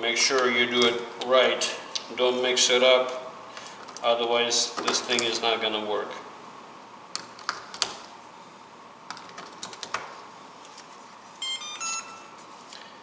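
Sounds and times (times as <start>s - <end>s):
electronic beeps tune: 11.4s - 12.4s.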